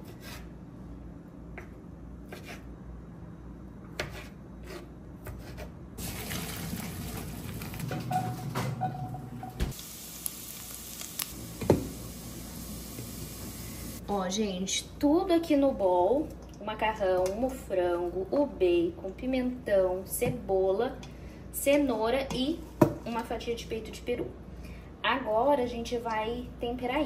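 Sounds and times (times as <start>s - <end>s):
pasta water pouring into colander: 6.0s - 7.8s.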